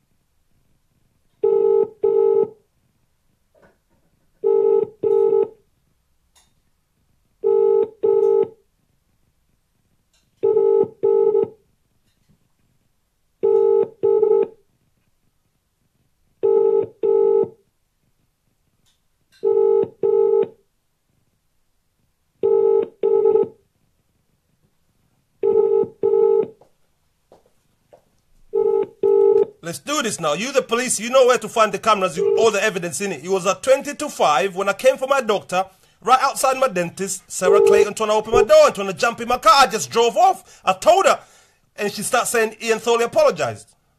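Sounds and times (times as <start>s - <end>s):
telephone double ringing tone: 1.4s - 2.6s, 4.4s - 5.6s, 10.4s - 11.5s, 13.4s - 14.5s, 19.4s - 20.6s, 25.4s - 26.6s, 28.5s - 29.6s, 32.2s - 32.6s, 37.4s - 38.8s.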